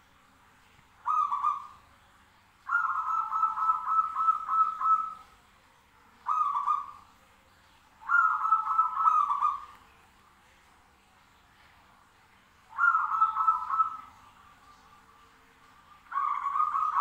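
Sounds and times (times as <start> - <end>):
dove cooing: 1.0 - 1.9, 2.7 - 5.4, 6.2 - 7.1, 8.0 - 9.9, 12.7 - 15.3, 16.0 - 17.0.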